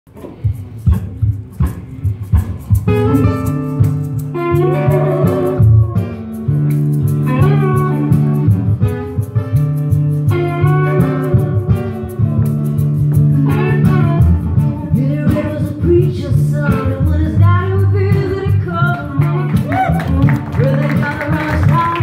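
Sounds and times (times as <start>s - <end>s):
guitars picked and strummed: 0.1s - 22.0s
woman singing: 13.5s - 22.0s.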